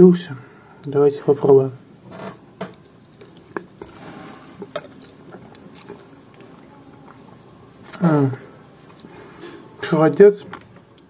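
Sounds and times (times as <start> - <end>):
small mouth clicks: 2.7 - 3.8
person chewing wet smacks: 2.7 - 3.9, 4.6 - 8.0, 8.8 - 9.2.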